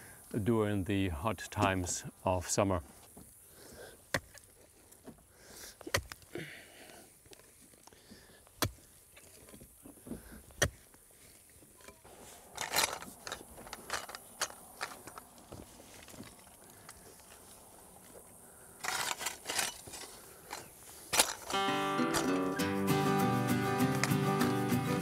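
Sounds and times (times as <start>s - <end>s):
mattock striking ground: 4.0s - 6.5s, 8.5s - 17.4s, 18.8s - 22.8s
shovel scraping through dirt: 18.8s - 22.6s.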